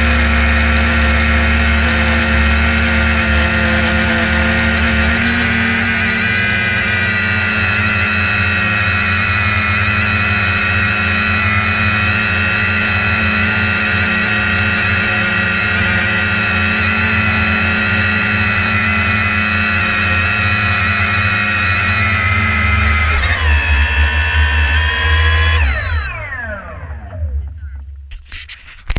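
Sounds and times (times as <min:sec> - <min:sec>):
drone propellers whining: 0:00.0 - 0:28.1.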